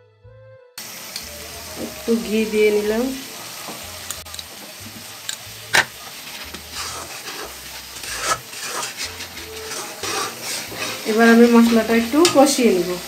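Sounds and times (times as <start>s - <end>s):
light frying sizzle: 0.8s - 13.0s
spatula scraping a wok: 4.6s - 13.0s.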